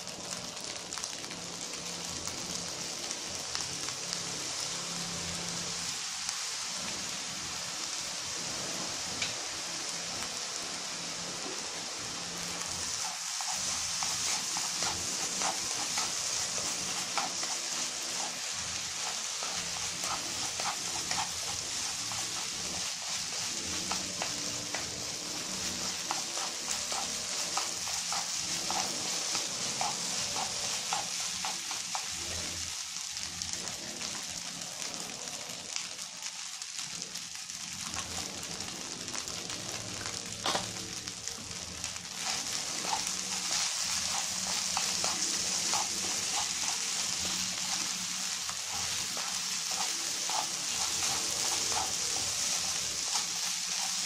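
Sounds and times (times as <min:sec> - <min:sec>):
rice sizzling in frying pan: 0:00.0 - 0:54.0
chopsticks tapping and scraping pan: 0:12.9 - 0:32.1, 0:40.4 - 0:40.7, 0:42.2 - 0:48.0, 0:48.7 - 0:54.0.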